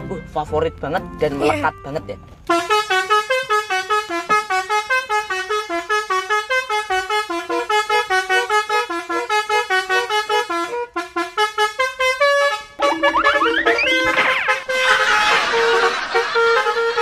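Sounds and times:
air horn playing a melody: 2.5 - 15.3.

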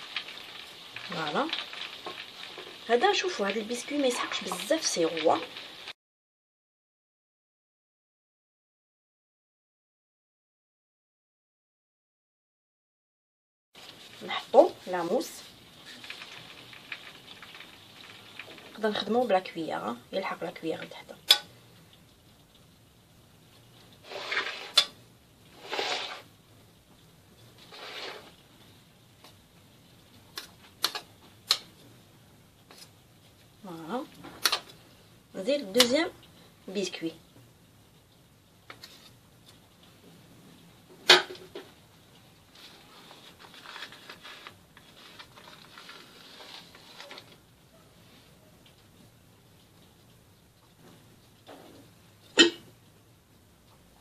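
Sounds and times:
cake rustling and crinkling: 13.8 - 19.1, 24.0 - 25.0, 27.6 - 28.4, 42.4 - 47.6.

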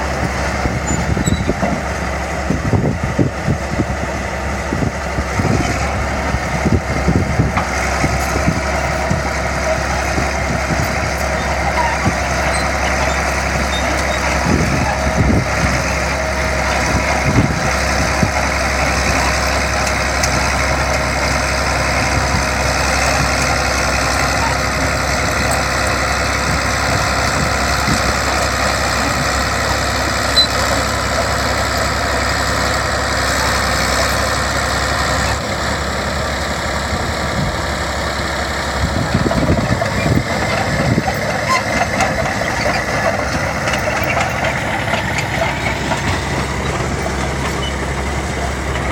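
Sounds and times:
bulldozer engine under load: 0.0 - 48.9.

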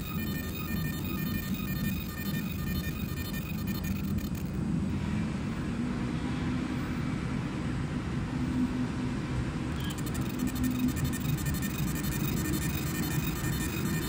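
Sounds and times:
laser machine high whine: 0.0 - 4.6, 9.8 - 14.0
steady low hum: 0.0 - 5.0, 9.7 - 14.0.

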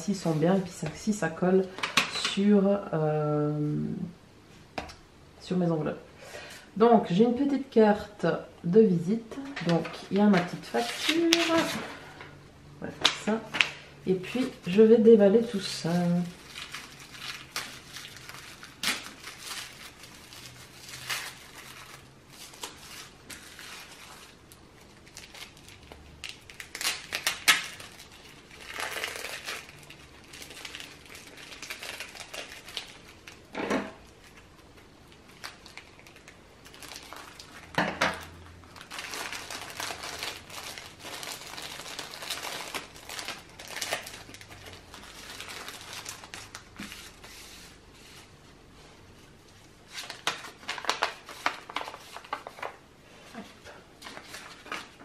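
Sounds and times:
packaging crinkling and rustling: 9.6 - 12.1, 13.0 - 48.3, 49.9 - 52.8, 53.4 - 55.0
sharp plastic crackles: 15.7 - 47.3, 49.9 - 52.8.

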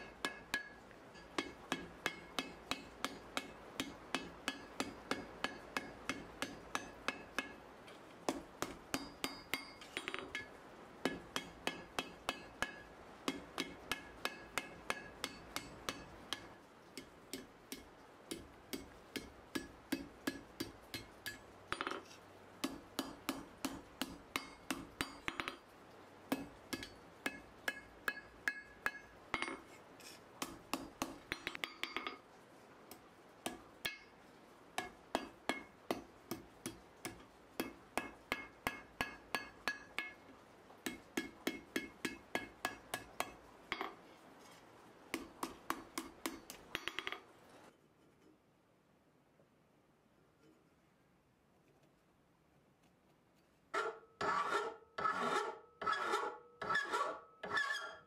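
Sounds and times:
hammer striking steel on anvil: 0.0 - 7.6, 8.3 - 25.6, 26.3 - 29.8, 30.4 - 32.2, 32.9 - 34.2, 34.8 - 40.2, 40.8 - 44.0, 45.1 - 47.2.

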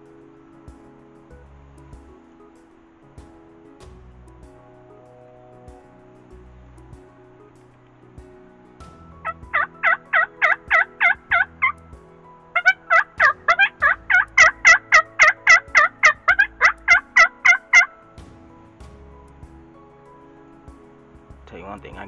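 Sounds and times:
turkey yelping: 9.2 - 11.8, 12.6 - 18.0.

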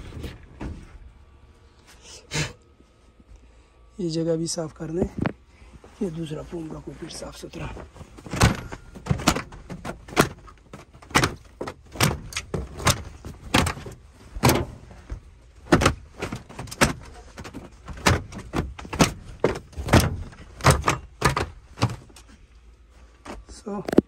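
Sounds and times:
knocks on interior panels: 8.2 - 22.2.

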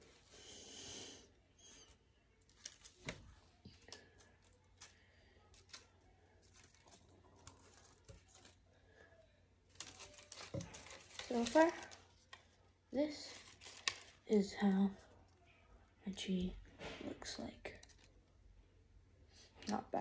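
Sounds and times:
light paper crinkles: 1.6 - 15.6, 17.6 - 18.4
paper rustling: 1.8 - 8.6, 9.7 - 12.4, 13.1 - 14.2.

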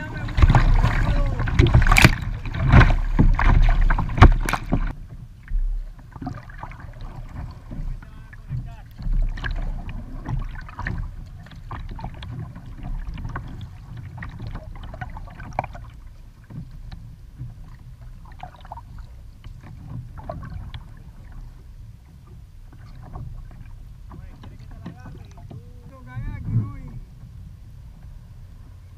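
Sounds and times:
low rumble: 0.0 - 16.3
paddle splashing in water: 0.0 - 28.9
water slapping against hull: 0.0 - 28.9.

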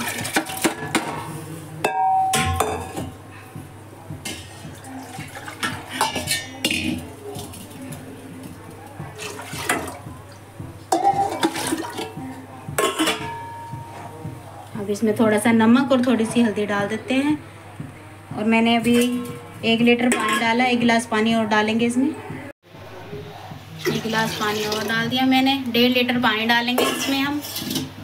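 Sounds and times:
water and lentils splashing: 9.2 - 10.0.

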